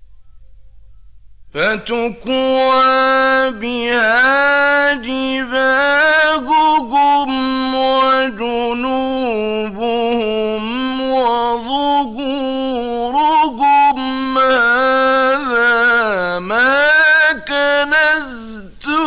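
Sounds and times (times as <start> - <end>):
man reciting melodically: 1.5 - 19.0.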